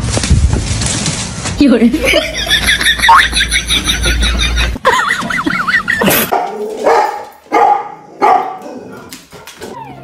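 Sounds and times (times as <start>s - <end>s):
dog barking: 6.3s - 9.4s
dog whimpering: 9.6s - 10.0s.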